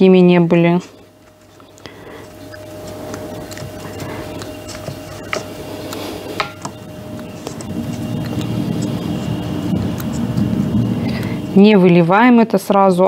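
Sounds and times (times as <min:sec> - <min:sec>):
faint steady hum: 0:00.0 - 0:13.0
pastry brush dabbing cake: 0:00.5 - 0:11.0.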